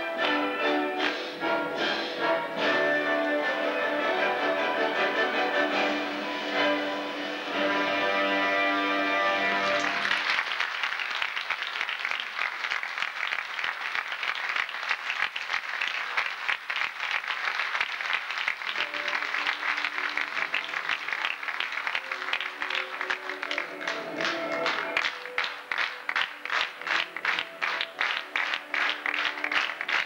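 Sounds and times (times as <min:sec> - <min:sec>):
orchestral waltz: 0:00.0 - 0:10.2, 0:18.7 - 0:30.0
soft music: 0:00.0 - 0:10.3, 0:18.5 - 0:30.0
audience applauding: 0:07.6 - 0:30.0.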